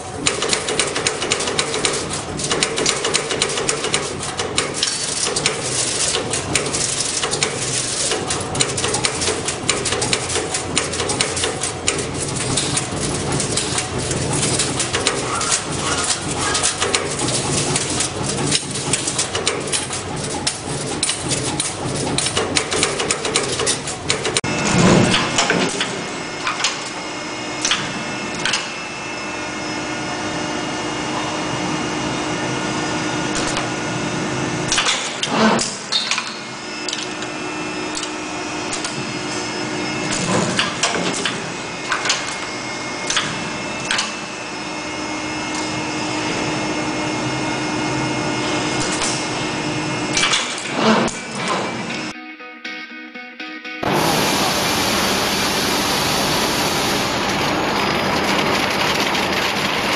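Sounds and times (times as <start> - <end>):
machine motor hum and whine: 0.0 - 52.2, 53.8 - 59.9
wire bending heads clacking: 0.2 - 24.5.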